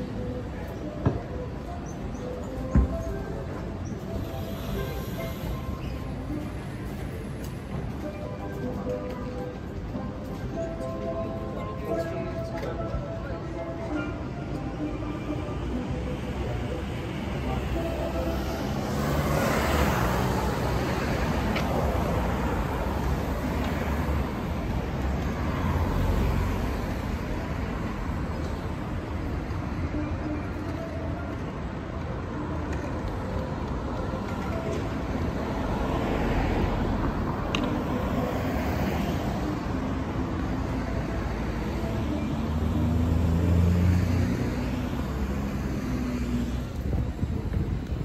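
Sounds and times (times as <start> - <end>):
cars passing: 0.0 - 48.0
loud low engine passing: 15.0 - 28.3, 34.0 - 48.0.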